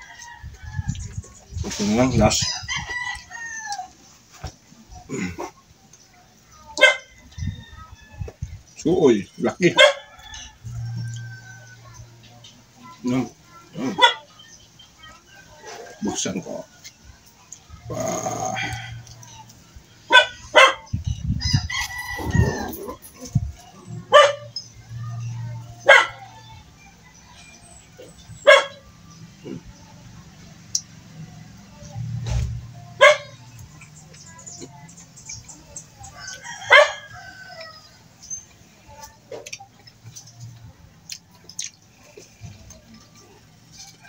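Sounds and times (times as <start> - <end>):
dog barking: 6.8 - 7.1, 9.7 - 10.0, 13.9 - 14.3, 20.1 - 20.9, 24.1 - 24.6, 25.8 - 26.3, 28.4 - 28.8, 33.0 - 33.4, 36.7 - 37.0
rooster crowing: 21.4 - 23.0
clicks and smacks of eating: 30.6 - 30.9, 38.3 - 44.0.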